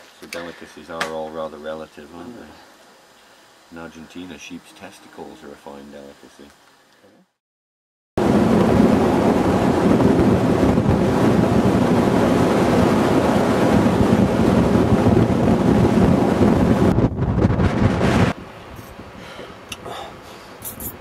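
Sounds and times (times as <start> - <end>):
strong wind buffeting microphone: 8.2 - 19.3.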